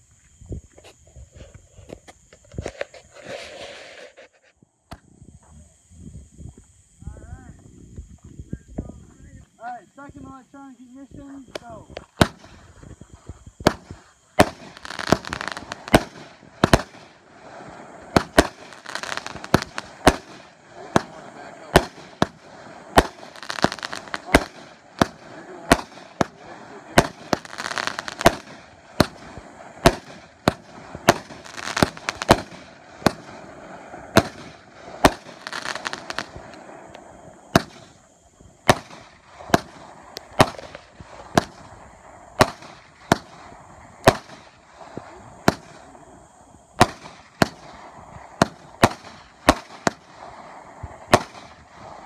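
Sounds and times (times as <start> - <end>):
firework hiss: 0.0 - 52.0
firework bangs: 11.0 - 52.0.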